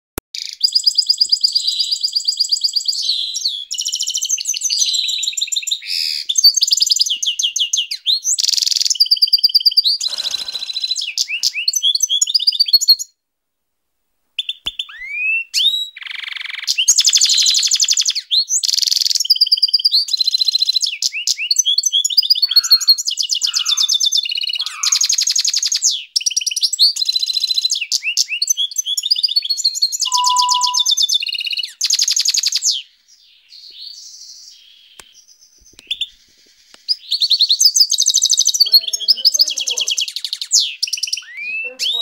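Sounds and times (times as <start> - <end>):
canary singing trills: 22.0 - 25.7, 30.0 - 32.6, 35.8 - 42.0
rising whistled notes: 30.1 - 31.2.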